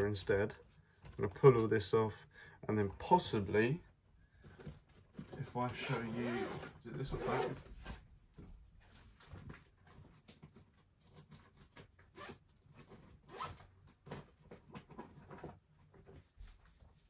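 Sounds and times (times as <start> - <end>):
zip-like rasp: 5.8 - 7.6
handling rustles and clicks: 7.5 - 17.0.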